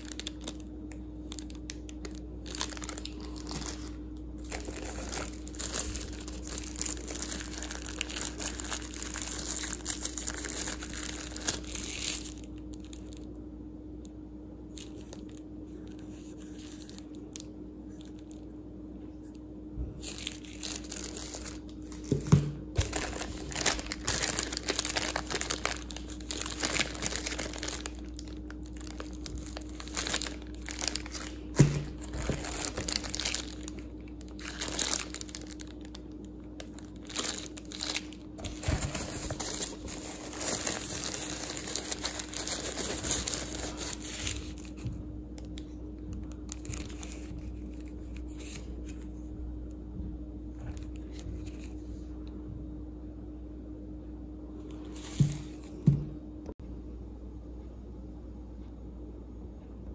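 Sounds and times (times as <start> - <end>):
plastic wrap crinkling: 0.0 - 13.3, 14.7 - 18.5, 20.0 - 49.1
low hum: 0.0 - 59.9.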